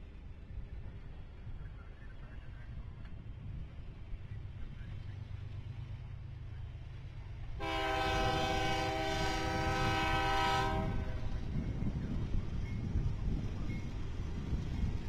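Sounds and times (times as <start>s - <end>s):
freight train rumbling past: 0.0s - 15.0s
locomotive air horn blast: 7.6s - 11.3s.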